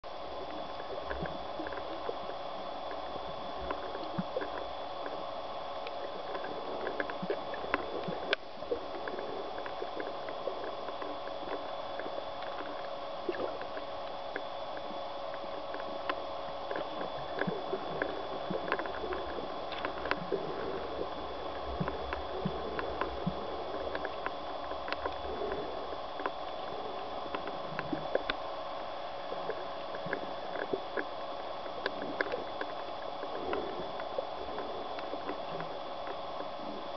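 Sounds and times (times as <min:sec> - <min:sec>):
faint high whine: 0:00.0 - 0:36.9
underwater droning hum: 0:00.0 - 0:36.9
irregular clicks and crackles: 0:00.1 - 0:36.9.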